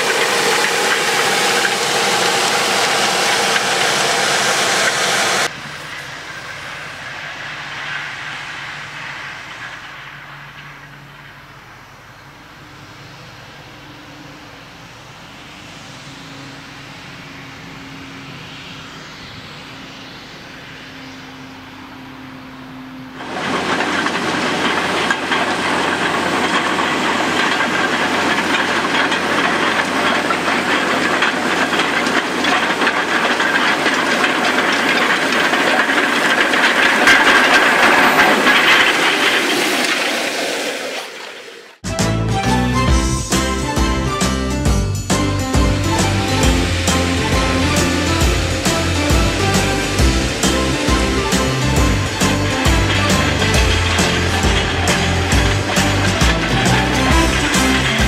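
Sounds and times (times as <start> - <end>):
tines rattling in soil: 0.0 - 6.8, 23.2 - 41.1, 42.1 - 58.0
distant tractor engine hum: 0.0 - 58.0
tractor and implements passing: 0.0 - 58.0.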